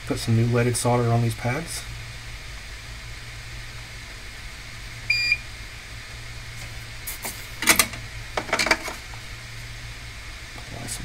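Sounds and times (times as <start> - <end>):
steady low hum: 0.0 - 11.0
short electronic beep: 5.1 - 5.4
clicks and knocks of tools: 7.6 - 9.0.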